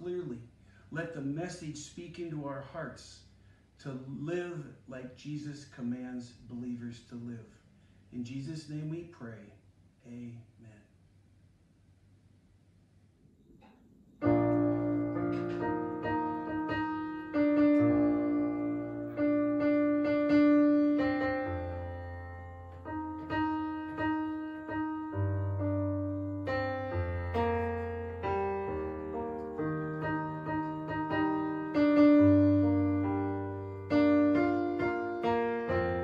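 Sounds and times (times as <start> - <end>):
slow piano chords: 13.6 - 36.0.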